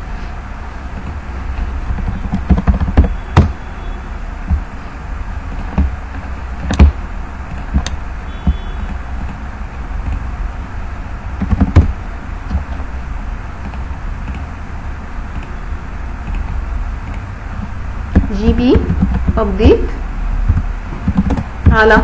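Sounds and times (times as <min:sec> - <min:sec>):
low hum of room noise: 0:00.0 - 0:22.0.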